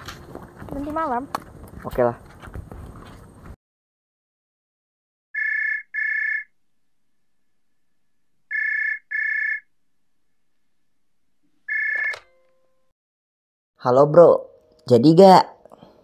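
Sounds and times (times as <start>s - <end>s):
telephone ringing: 5.4s - 6.5s, 8.5s - 9.7s, 11.7s - 12.9s
phone click: 11.7s - 12.6s.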